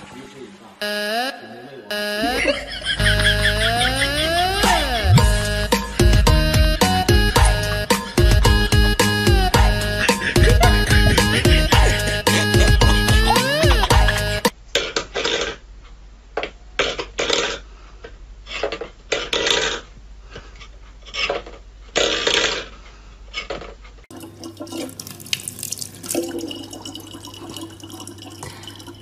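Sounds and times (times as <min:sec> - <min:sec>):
background music: 0:00.8 - 0:14.5
water pouring into plastic bottle: 0:24.2 - 0:29.0.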